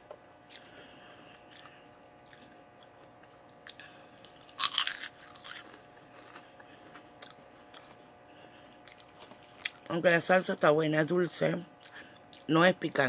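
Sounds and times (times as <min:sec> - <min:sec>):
crunchy snacks being chewed: 0:00.4 - 0:10.0.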